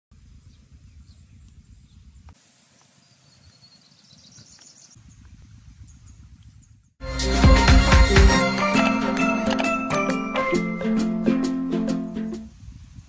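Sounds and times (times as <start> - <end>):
wind buffeting microphone: 4.2 - 6.9, 12.4 - 13.0.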